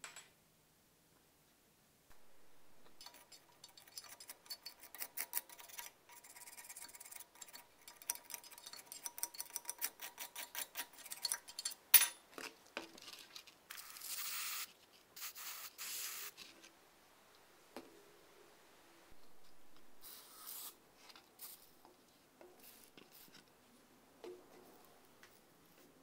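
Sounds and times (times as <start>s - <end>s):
screwdriver scraping rust: 3.0s - 11.8s
short hissing sprays: 13.8s - 16.4s, 20.0s - 20.8s, 21.4s - 21.8s.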